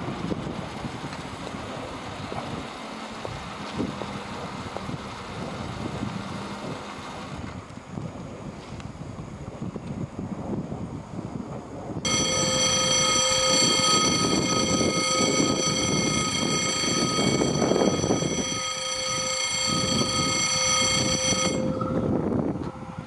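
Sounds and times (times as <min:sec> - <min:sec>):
train rumble: 0:00.0 - 0:23.0
train horn: 0:12.1 - 0:23.0.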